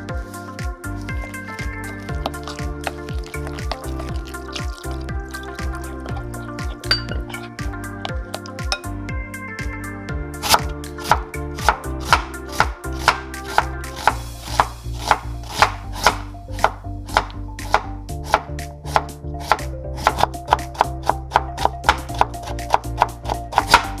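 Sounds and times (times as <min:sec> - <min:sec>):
background music: 0:00.0 - 0:24.0
knife chopping on wooden board: 0:10.4 - 0:24.0.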